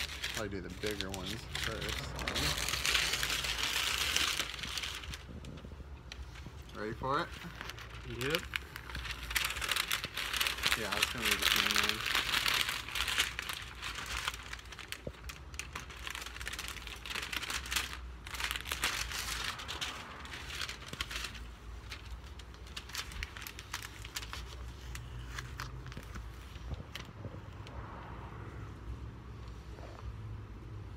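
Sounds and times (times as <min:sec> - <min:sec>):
paper and tape peeling off: 0:00.0 - 0:27.6.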